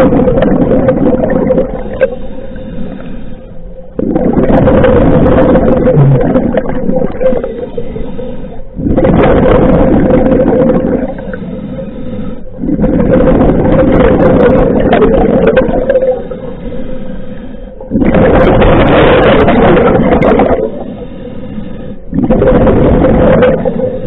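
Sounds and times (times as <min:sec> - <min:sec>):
bubbling exhalations underwater: 0:00.0 - 0:02.1, 0:04.0 - 0:07.7, 0:08.8 - 0:11.3, 0:12.6 - 0:16.4, 0:17.8 - 0:20.8, 0:22.1 - 0:24.0
regulator inhalations: 0:01.8 - 0:03.9, 0:07.4 - 0:08.8, 0:11.1 - 0:12.6, 0:16.2 - 0:18.0, 0:20.7 - 0:22.2.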